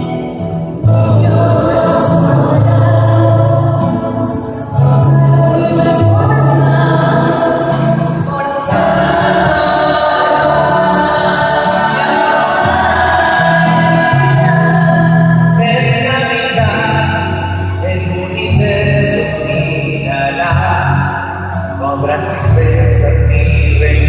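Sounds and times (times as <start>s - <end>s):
choir singing a carol: 0.0s - 17.2s.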